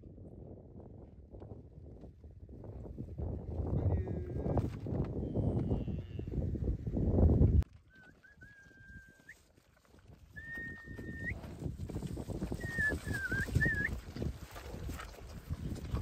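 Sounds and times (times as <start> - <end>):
short high whistles: 7.9 - 9.4, 10.4 - 11.4, 12.6 - 14.0.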